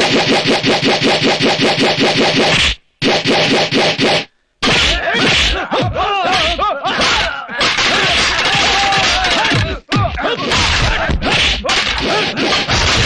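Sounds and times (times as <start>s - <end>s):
punch whacks and swishes: 0.0s - 5.6s, 10.6s - 13.0s
men yelling: 4.9s - 12.4s.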